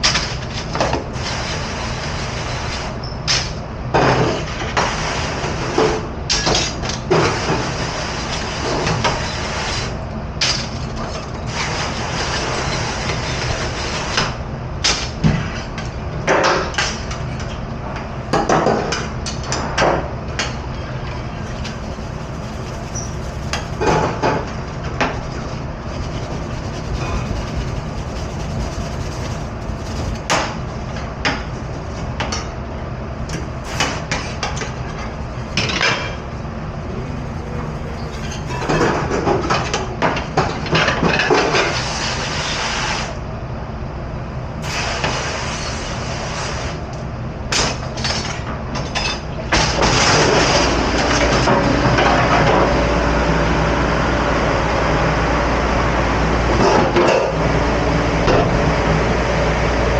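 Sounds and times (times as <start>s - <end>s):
steady machinery hum: 0.0s - 59.9s
steady rushing noise: 21.3s - 31.0s, 34.9s - 39.9s.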